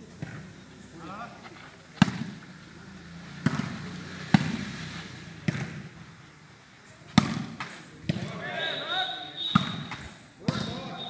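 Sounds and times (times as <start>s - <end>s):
volleyball hits: 0.0s - 0.8s, 1.4s - 2.6s, 3.3s - 4.8s, 5.4s - 6.0s, 7.0s - 11.0s.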